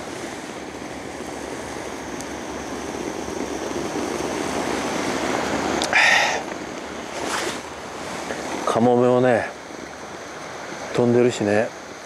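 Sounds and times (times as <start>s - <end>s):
wind on microphone: 0.0s - 8.9s
loud rush of noise: 0.0s - 11.2s
small waves washing on beach: 0.0s - 12.0s.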